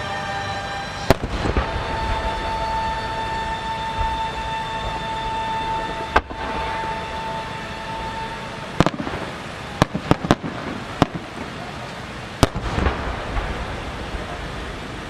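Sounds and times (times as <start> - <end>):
steady high tone: 0.0 - 9.8
firework shells bursting: 1.0 - 11.7, 12.4 - 14.3.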